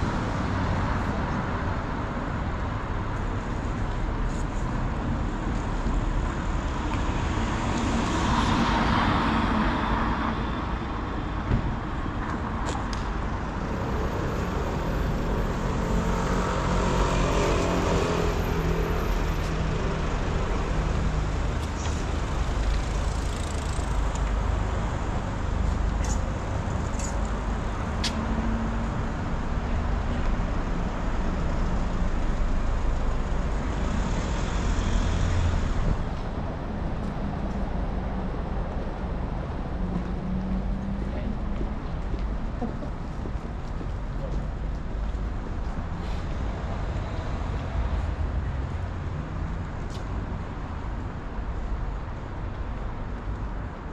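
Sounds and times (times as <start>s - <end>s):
cars and vans passing: 0.0s - 53.9s
passing vehicle engine: 13.4s - 29.7s.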